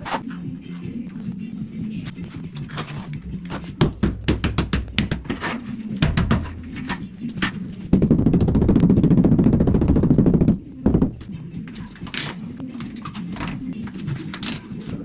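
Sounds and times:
rubber mallet tapping on tile: 6.0 - 7.0.

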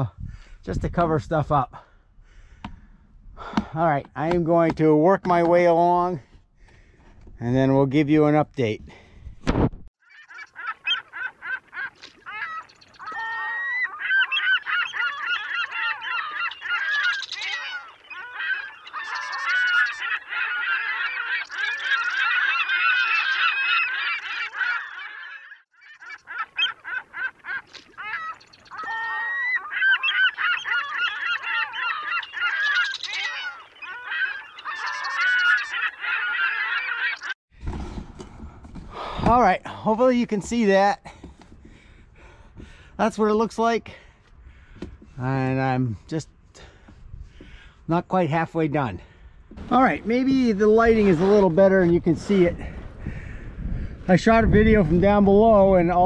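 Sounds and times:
geese honking: 10.0 - 37.4, 49.6 - 53.5.

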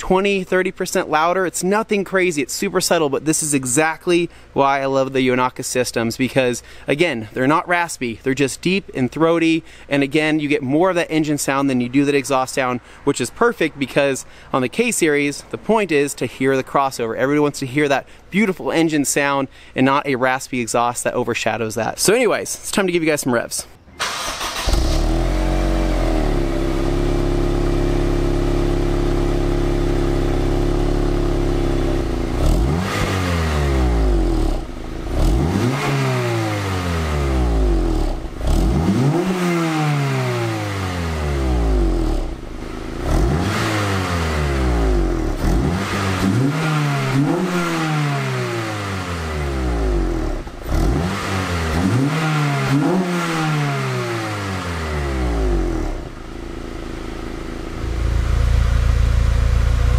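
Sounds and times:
car engine revving: 24.0 - 59.9.

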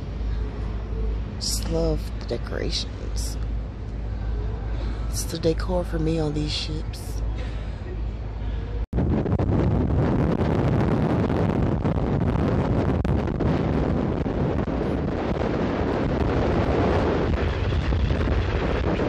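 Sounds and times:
wind buffeting microphone: 7.0 - 19.0.

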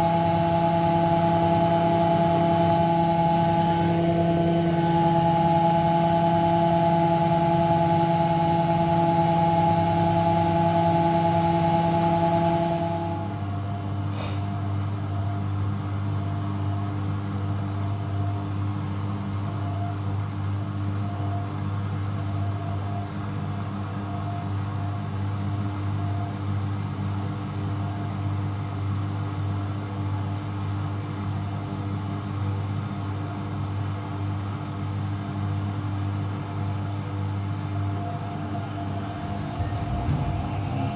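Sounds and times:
washing machine spinning: 0.0 - 14.0, 30.4 - 40.9.

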